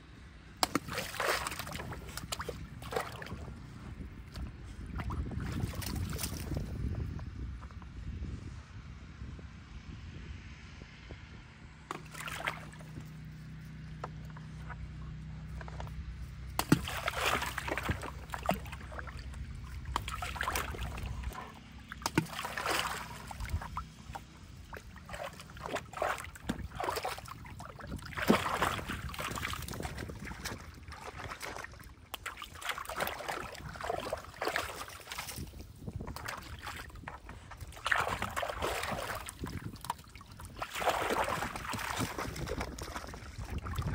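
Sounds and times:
low steady hum: 0:00.0 - 0:43.9
puppy splashing in water: 0:00.6 - 0:07.0, 0:11.9 - 0:43.9.

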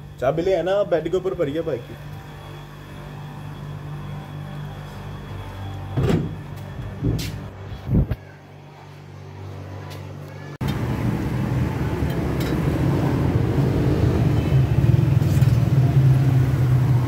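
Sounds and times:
traffic rumble: 0:06.1 - 0:17.0.

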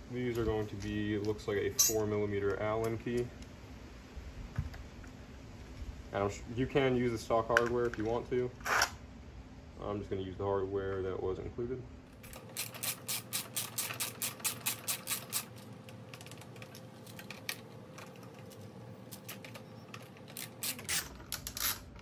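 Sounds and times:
ratcheting screwdriver clicking: 0:12.3 - 0:15.6, 0:20.3 - 0:21.8.

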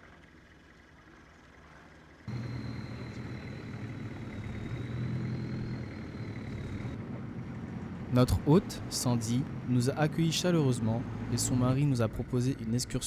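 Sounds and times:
boat engine running: 0:00.3 - 0:13.0
thin high whine: 0:02.3 - 0:07.0.

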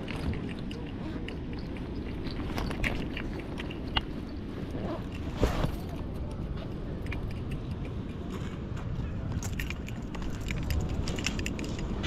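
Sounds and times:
fishing line clicks and rustles: 0:09.3 - 0:12.0.

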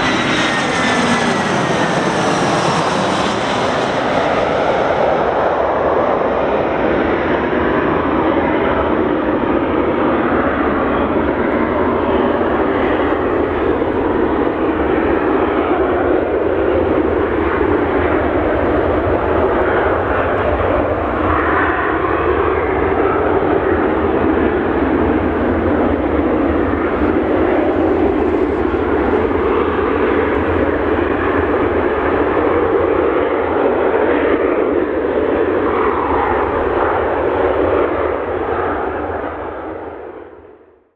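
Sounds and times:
jet engine noise: 0:00.0 - 0:40.9
low rumble: 0:23.4 - 0:32.4.

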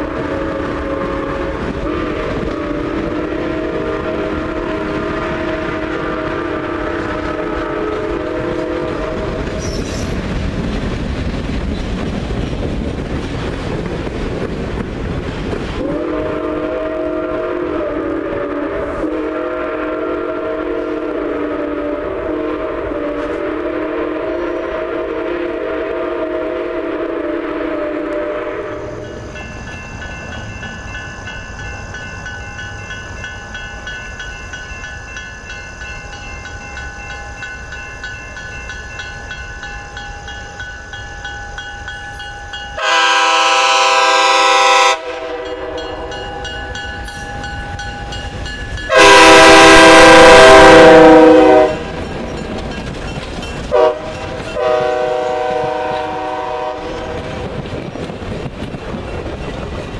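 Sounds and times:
locomotive air horn blasts: 0:00.0 - 0:09.8, 0:15.8 - 0:29.2, 0:42.8 - 0:46.2, 0:48.9 - 0:52.0, 0:53.7 - 0:57.6
train rumble: 0:00.0 - 0:59.9.

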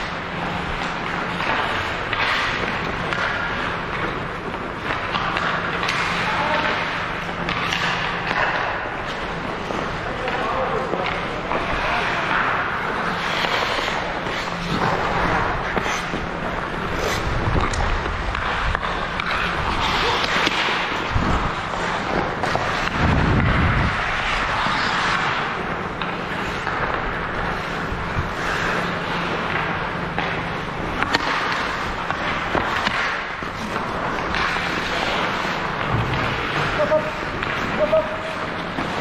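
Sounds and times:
skate blades scraping ice: 0:00.0 - 0:39.0
sticks and puck clacking: 0:00.0 - 0:39.0.

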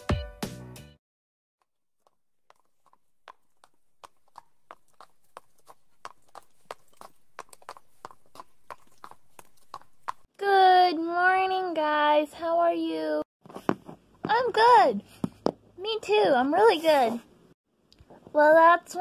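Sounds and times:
horse hooves clip-clopping: 0:02.0 - 0:10.3.

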